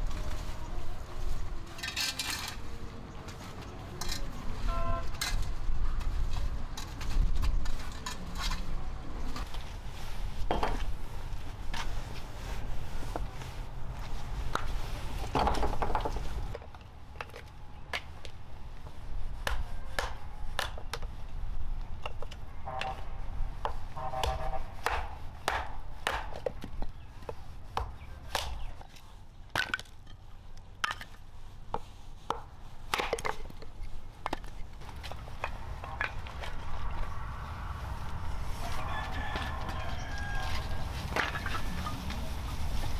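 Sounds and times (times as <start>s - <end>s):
broom sweeping concrete floor: 0.0s - 15.3s, 37.8s - 42.9s
clatter of split sticks: 1.7s - 3.4s, 4.0s - 4.4s
knife chopping wood: 19.4s - 21.0s, 23.6s - 26.7s, 27.8s - 28.7s.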